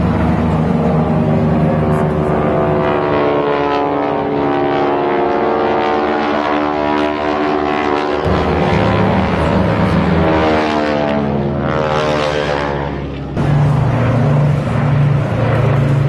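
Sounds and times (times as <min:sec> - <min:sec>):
propeller plane engines droning: 0:00.0 - 0:16.0.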